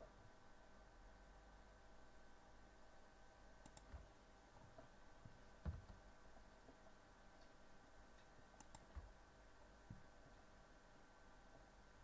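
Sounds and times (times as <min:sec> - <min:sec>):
faint computer mouse clicks: 0:03.6 - 0:04.1, 0:08.2 - 0:09.1
soft low thump: 0:05.6 - 0:06.0.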